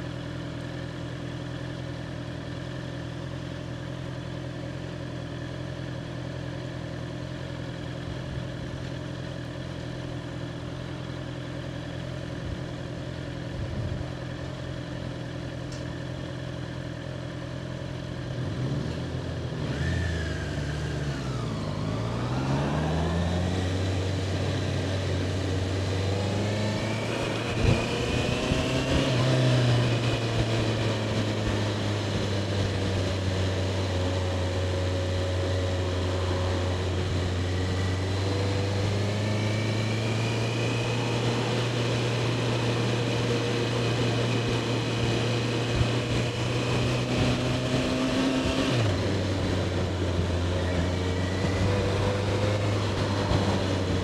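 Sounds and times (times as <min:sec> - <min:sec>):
motorcycle engine idling and revving: 0:00.0 - 0:54.0.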